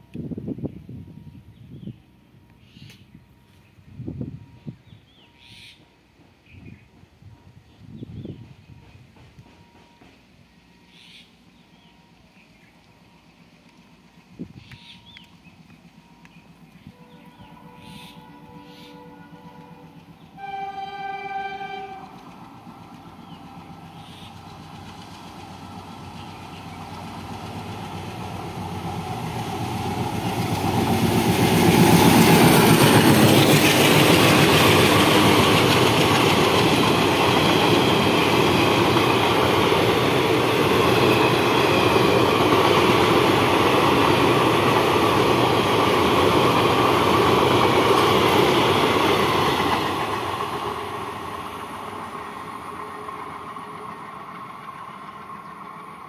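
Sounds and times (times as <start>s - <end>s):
train coaches clattering on rails: 5.5s - 11.2s, 21.7s - 56.0s
train horn blast: 16.8s - 22.4s.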